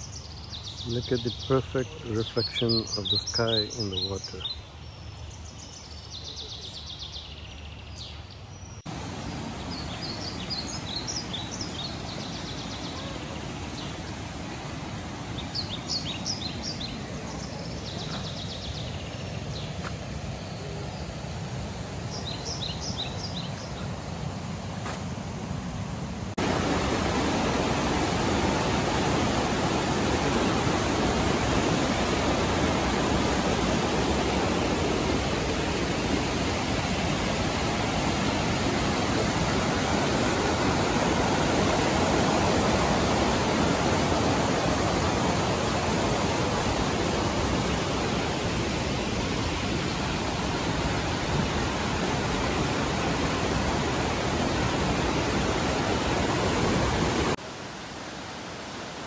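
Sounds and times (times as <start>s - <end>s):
rushing whitewater: 8.9s - 59.0s.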